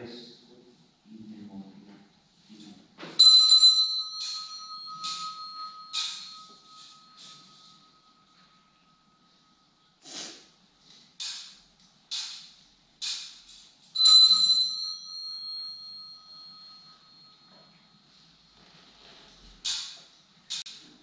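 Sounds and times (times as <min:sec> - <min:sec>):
altar bells jingling: 0:03.2 - 0:09.6, 0:14.0 - 0:17.7
bell ringing clear tone: 0:03.2 - 0:10.0, 0:14.0 - 0:18.6.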